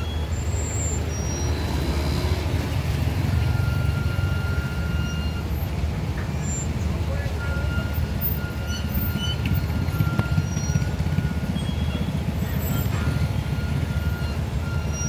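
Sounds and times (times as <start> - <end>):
motorcycle engine running: 9.5 - 13.9.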